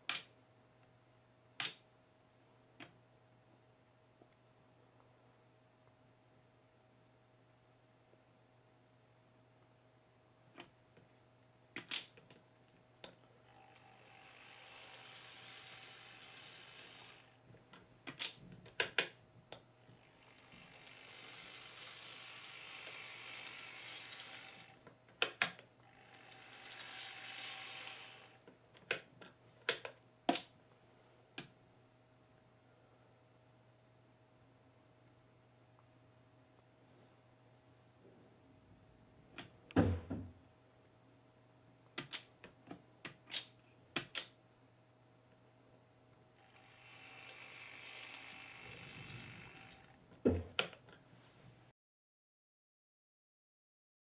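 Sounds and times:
model railcar whirring: 13.5 - 17.4, 20.0 - 24.8, 25.8 - 28.4, 46.4 - 50.0.

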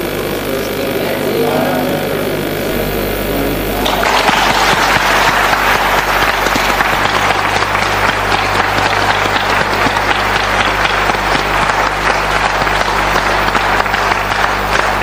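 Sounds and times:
low mains hum: 0.0 - 15.0
crowd applauding: 3.7 - 15.0.

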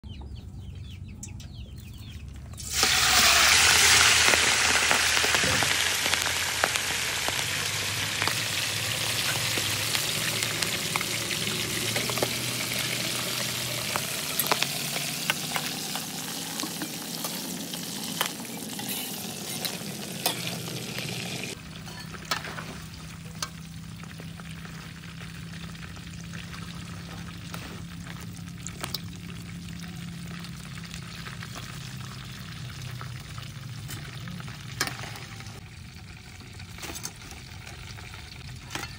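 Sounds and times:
prawns sizzling in hot oil: 2.6 - 38.9
metal spatula scraping wok: 8.2 - 23.6.

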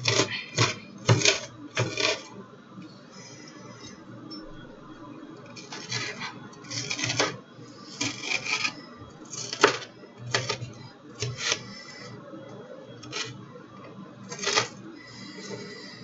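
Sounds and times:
knife chopping onion: 0.0 - 2.3, 5.5 - 11.8, 13.0 - 13.4, 14.3 - 14.8.

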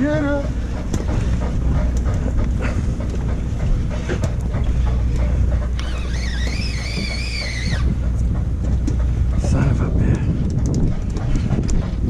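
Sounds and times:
boat engine rumble: 0.0 - 12.0
wind on microphone: 0.0 - 12.0
wavering whistle-like tone: 5.8 - 7.9.

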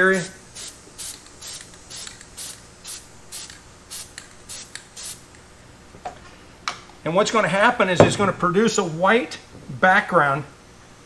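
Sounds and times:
aerosol spray hissing puffs: 0.2 - 5.3.

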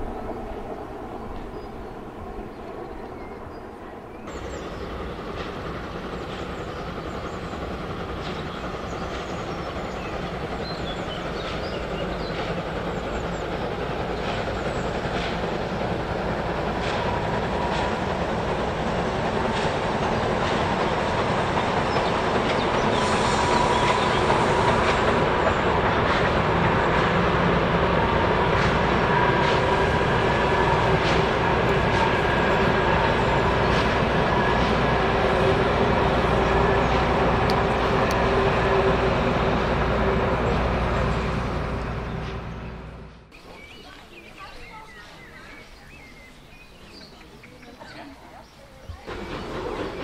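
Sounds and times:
steam locomotive hauling train: 0.0 - 50.0
wheels clicking over rail joints: 4.3 - 39.0, 48.8 - 50.0.

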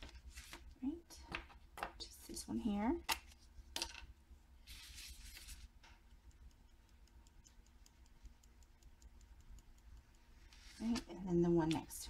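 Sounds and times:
glitter ticking onto paper: 5.3 - 12.0.

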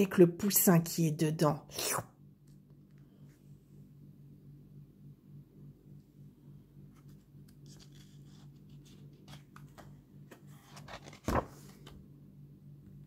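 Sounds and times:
faint low hum: 0.0 - 13.0
paper pages rustling: 6.9 - 12.0
page turning swish: 7.0 - 12.0.

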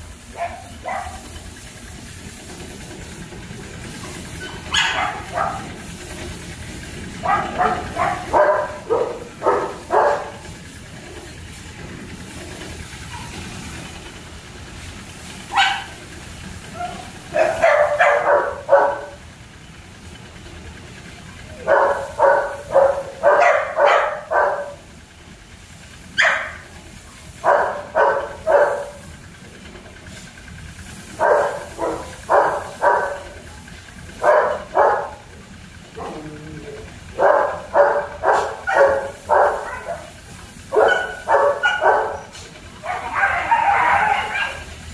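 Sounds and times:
puppies barking: 0.3 - 1.4, 4.2 - 11.4, 13.0 - 13.7, 15.4 - 19.3, 21.5 - 24.9, 26.1 - 26.8, 27.4 - 29.3, 31.1 - 35.3, 35.9 - 44.8.

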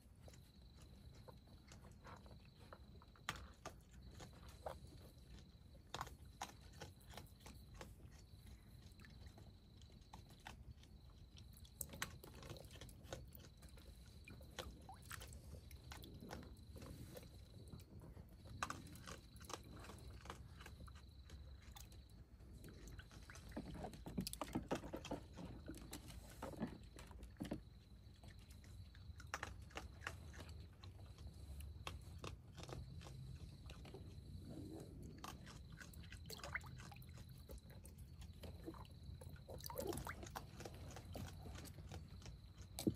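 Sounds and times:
small splashes in water: 35.7 - 37.5.

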